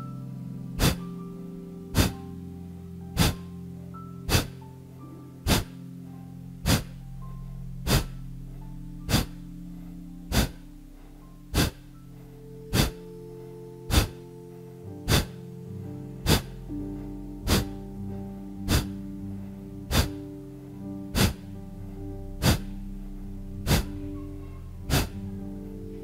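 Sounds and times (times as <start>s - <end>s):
background music: 0.0s - 26.0s
sharp forceful breaths: 0.8s - 1.1s, 2.0s - 2.2s, 3.2s - 3.4s, 4.3s - 4.6s, 5.4s - 5.8s, 6.6s - 6.9s, 7.8s - 8.1s, 9.1s - 9.3s, 10.3s - 13.1s, 13.9s - 14.2s, 15.0s - 15.4s, 16.2s - 16.7s, 17.4s - 17.7s, 18.7s - 18.9s, 19.8s - 20.2s, 21.1s - 21.4s, 22.4s - 22.7s, 23.6s - 23.9s, 24.9s - 25.2s.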